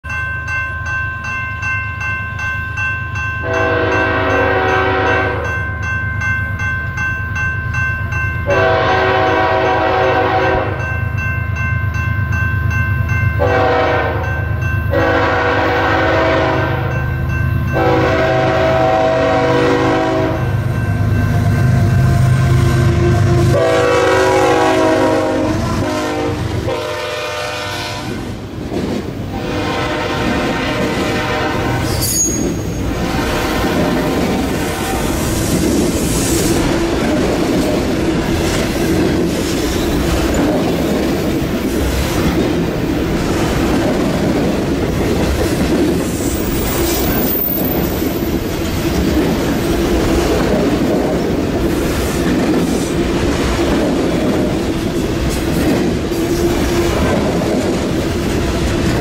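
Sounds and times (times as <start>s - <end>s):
rail cars rattling: 0.0s - 59.0s
locomotive air horn blasts: 3.4s - 5.5s, 8.5s - 10.8s, 13.4s - 14.3s, 14.9s - 16.9s, 17.8s - 20.6s, 22.4s - 28.2s, 29.3s - 35.2s.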